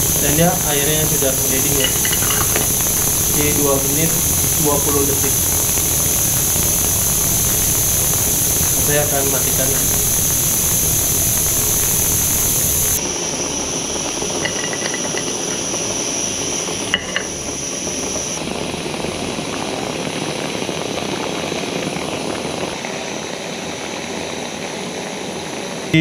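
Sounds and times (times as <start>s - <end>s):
gas stove burner hissing: 0.0s - 18.4s.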